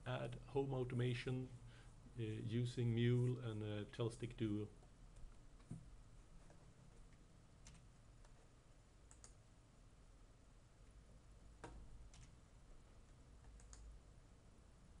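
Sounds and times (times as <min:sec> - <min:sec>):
computer mouse clicks: 0:07.6 - 0:08.5, 0:09.1 - 0:09.4, 0:11.6 - 0:12.4, 0:13.1 - 0:14.0.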